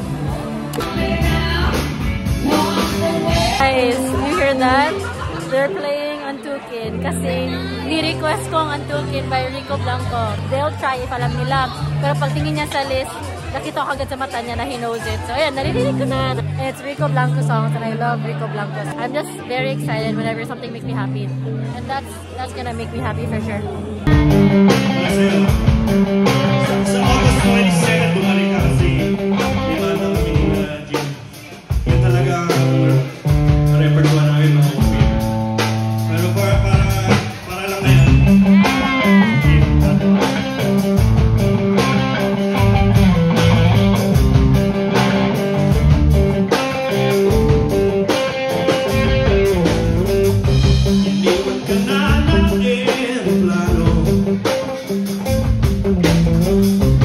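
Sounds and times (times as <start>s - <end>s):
bass guitar: 0.0s - 57.0s
drums: 0.0s - 57.0s
electric guitars: 0.0s - 57.0s
man singing: 2.4s - 3.6s, 24.7s - 35.2s, 36.0s - 40.4s, 51.1s - 54.6s.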